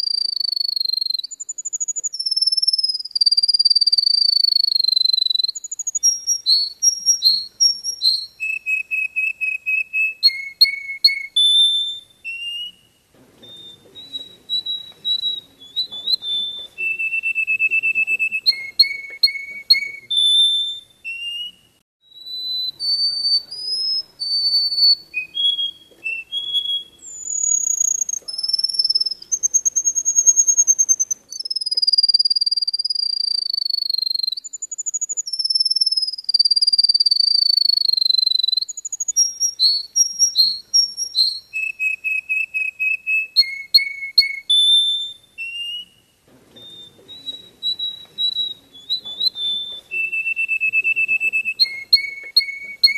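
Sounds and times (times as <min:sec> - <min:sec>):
canary singing: 0:00.0 - 0:52.9.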